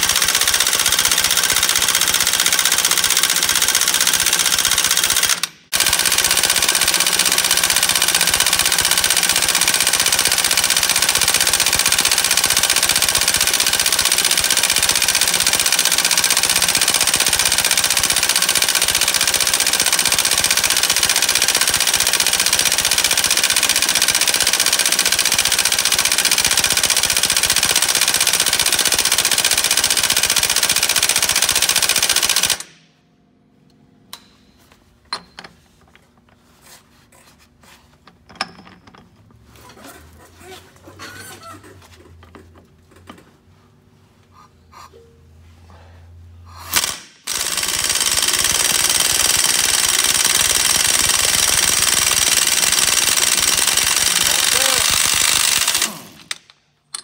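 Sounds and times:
impact wrench hammering: 0.0 - 32.9, 34.1 - 36.1, 46.6 - 57.0.

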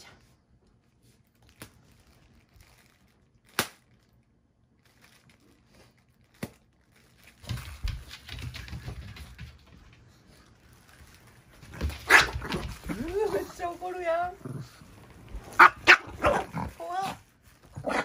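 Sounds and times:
plastic crinkling: 0.8 - 8.8, 10.0 - 17.9
bubble wrap popping: 1.2 - 8.1, 10.5 - 14.2.

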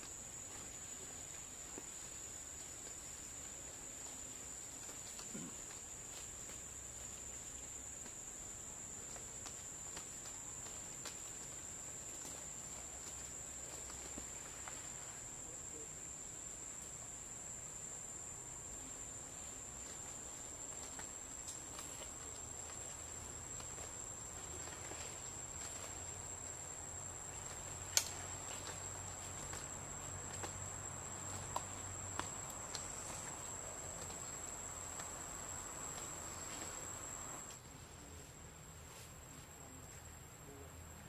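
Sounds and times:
insects droning: 0.0 - 41.0.

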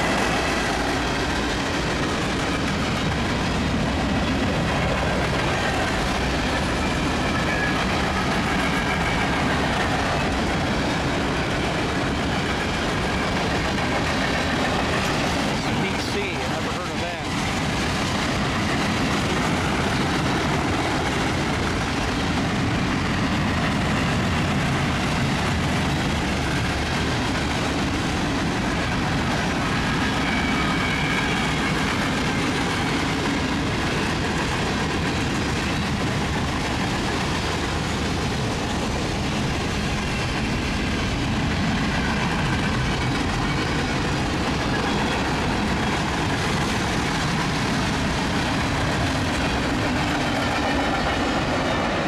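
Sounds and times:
steel wheels rolling on rail: 0.0 - 52.0.

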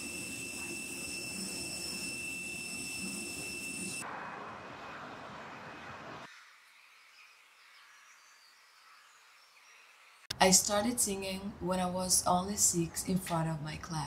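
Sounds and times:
jet engine whine: 0.0 - 6.3.

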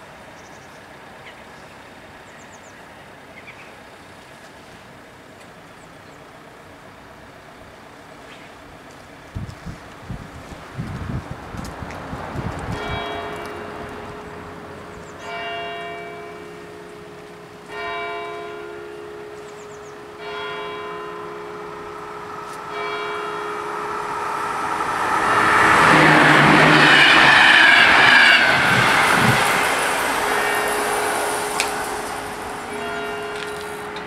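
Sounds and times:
passenger train passing: 9.9 - 34.0
level crossing bell ringing: 15.4 - 24.8, 30.0 - 34.0.

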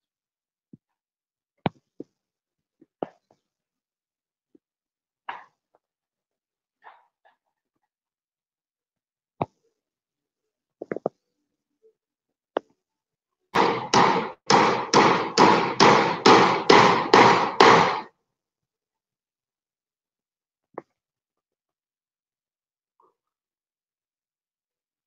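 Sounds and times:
hammer on metal roofing: 13.6 - 18.1.

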